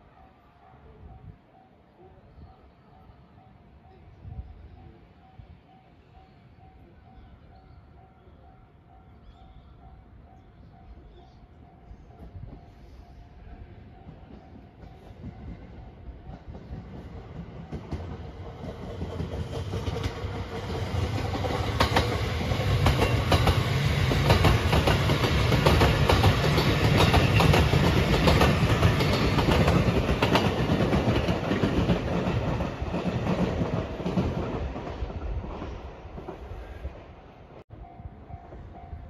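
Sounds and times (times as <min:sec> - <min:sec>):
electric train passing: 0:00.0 - 0:39.0
wheels clacking over rail joints: 0:16.2 - 0:35.0.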